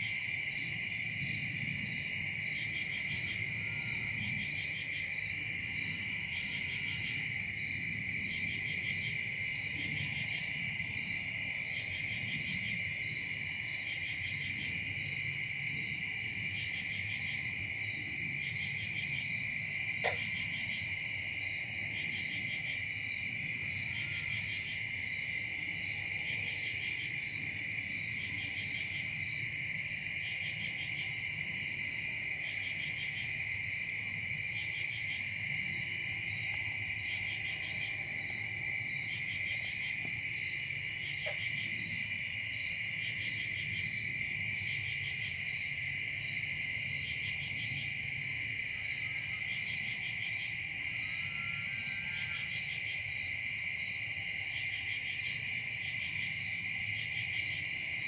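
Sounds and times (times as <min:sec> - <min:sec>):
crickets trilling: 0:00.0 - 0:58.0
insect pulsing trill: 0:50.8 - 0:52.8.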